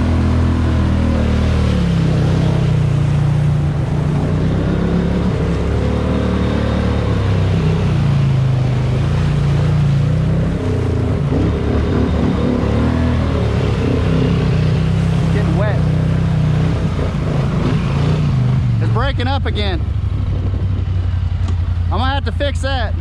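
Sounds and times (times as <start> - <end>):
atv engine running: 0.0 - 23.0.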